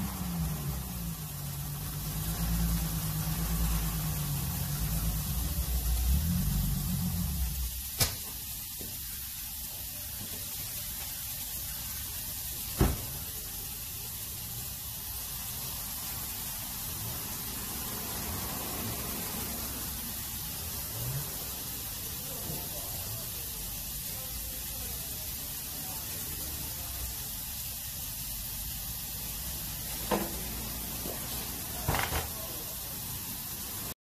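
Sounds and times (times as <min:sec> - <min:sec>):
compressed air hissing into tire: 0:00.0 - 0:34.0
knocks on tire: 0:12.8 - 0:13.2, 0:31.9 - 0:32.3.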